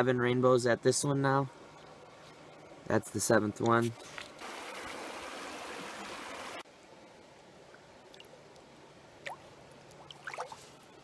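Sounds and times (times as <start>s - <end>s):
water rushing over rocks: 4.4s - 6.6s
water trickling: 7.7s - 11.0s
small water splashes: 9.2s - 10.8s.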